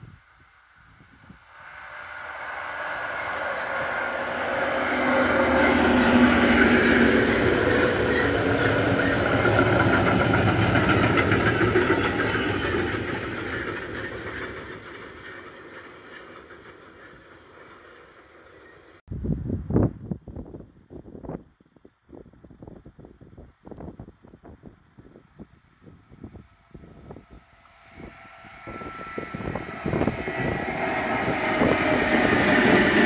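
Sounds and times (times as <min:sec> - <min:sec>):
freight train passing: 0:00.0 - 0:19.0, 0:25.0 - 0:33.0
wheels clacking over rail joints: 0:01.8 - 0:18.9.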